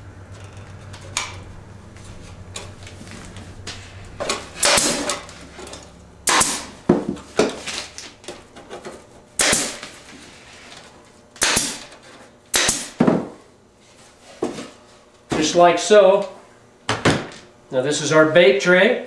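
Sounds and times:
staple gun firing: 9.4 - 9.8, 11.4 - 11.9, 12.6 - 13.0.

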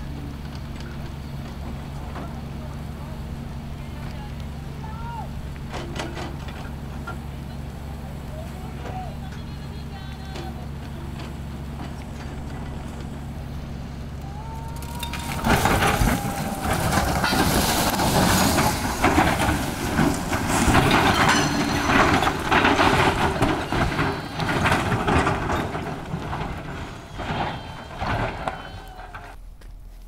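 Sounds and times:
heavy machine engine running: 0.0 - 29.5
ragged knocking and grinding: 5.5 - 7.4, 14.8 - 29.4.

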